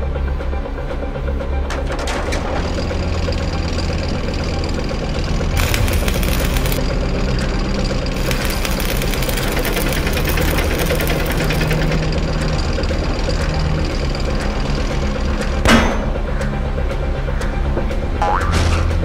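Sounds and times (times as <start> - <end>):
tank engines droning: 0.0 - 19.0
harsh hissing noise: 5.6 - 6.8, 8.2 - 11.8.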